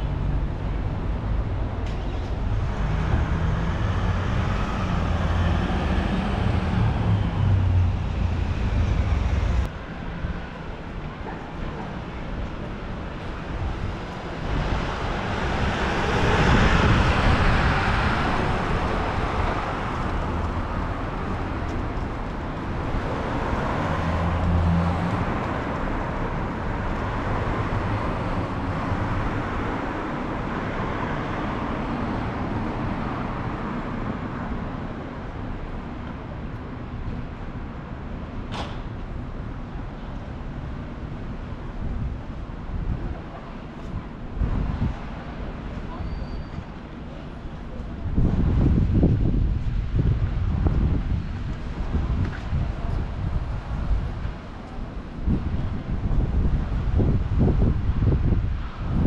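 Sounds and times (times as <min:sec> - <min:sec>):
vehicle engine hum: 0:00.0 - 0:10.0
cars passing: 0:00.0 - 0:46.0.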